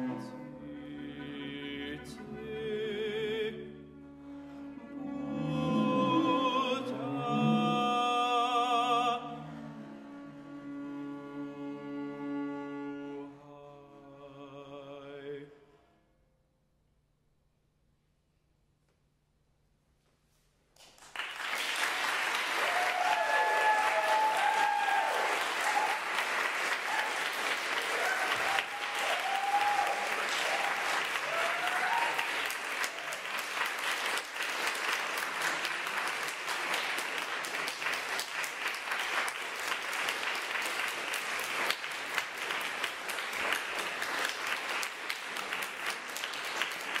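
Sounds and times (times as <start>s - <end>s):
audience applauding: 20.8s - 47.0s
crowd whooping and cheering: 22.3s - 33.5s.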